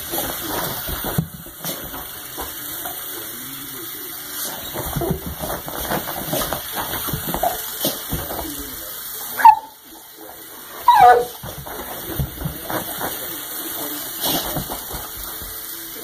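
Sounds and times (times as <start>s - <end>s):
dog sniffing and scuffling on carpet: 4.2s - 8.6s, 10.6s - 15.6s
dog whining: 9.4s - 9.8s, 10.8s - 11.4s.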